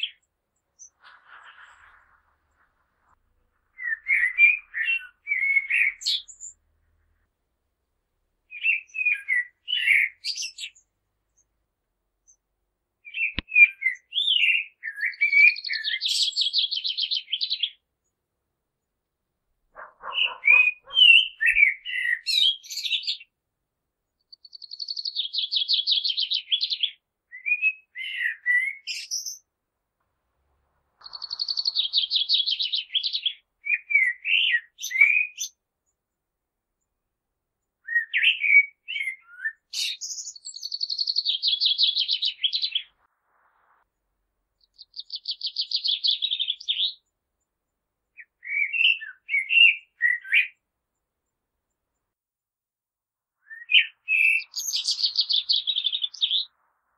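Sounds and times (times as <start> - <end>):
blackbird singing: 0.0 - 2.0, 3.7 - 6.7, 8.5 - 11.5, 13.0 - 17.8, 19.8 - 23.3, 24.2 - 29.5, 31.0 - 35.6, 37.8 - 43.0, 44.6 - 47.1, 48.1 - 50.6, 53.4 - 56.6.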